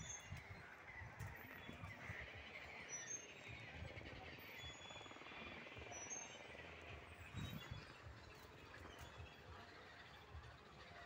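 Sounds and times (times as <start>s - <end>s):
distant bird chirps: 0.0s - 3.8s.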